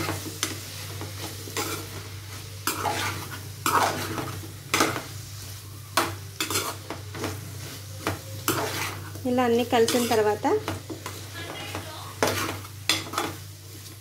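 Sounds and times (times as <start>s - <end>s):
low sizzle: 0.0s - 14.0s
metal spoon scraping a pot: 2.6s - 5.0s, 6.4s - 7.4s, 8.4s - 10.4s, 12.2s - 13.4s.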